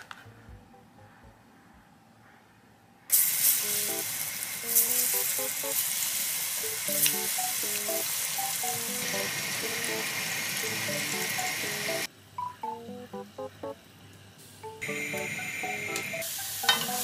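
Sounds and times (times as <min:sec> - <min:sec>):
chicken deep-frying in oil: 0:03.1 - 0:12.1.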